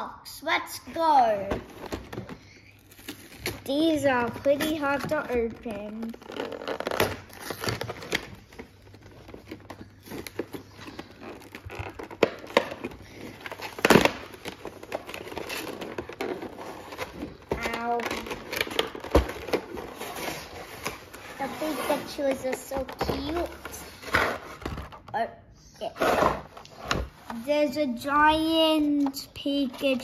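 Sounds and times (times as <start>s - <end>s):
cardboard and plastic crinkling: 1.3s - 25.1s.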